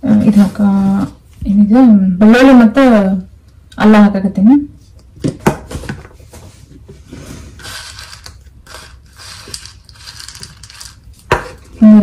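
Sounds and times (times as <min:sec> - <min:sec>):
garlic scraping and rustling: 0:07.0 - 0:11.8.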